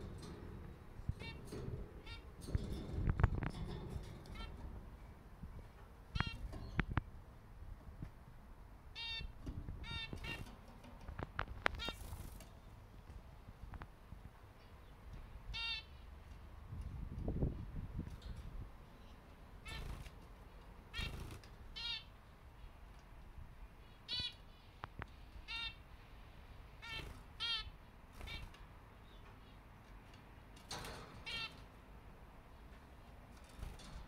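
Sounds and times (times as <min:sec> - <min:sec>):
finches honking calls: 0:01.0 - 0:02.4, 0:04.2 - 0:04.7, 0:06.1 - 0:06.8, 0:08.9 - 0:10.5, 0:15.5 - 0:16.1, 0:20.9 - 0:22.2, 0:23.8 - 0:24.5, 0:25.4 - 0:25.9, 0:26.8 - 0:29.2.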